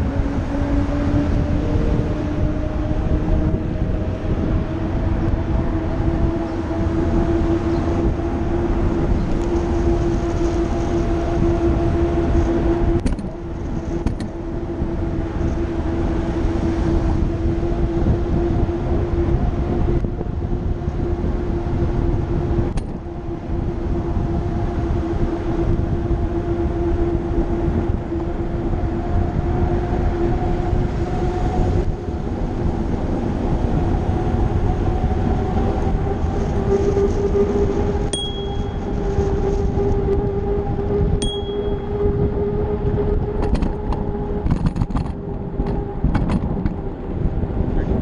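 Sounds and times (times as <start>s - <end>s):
wind rumble on microphone: 0.0s - 48.0s
bicycle bell ding: 38.1s - 38.8s, 41.2s - 41.8s.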